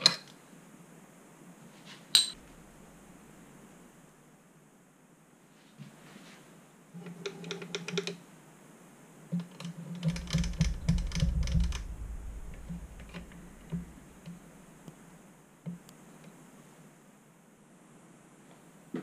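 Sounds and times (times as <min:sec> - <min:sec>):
low rumble: 0:02.4 - 0:04.2, 0:10.0 - 0:15.5.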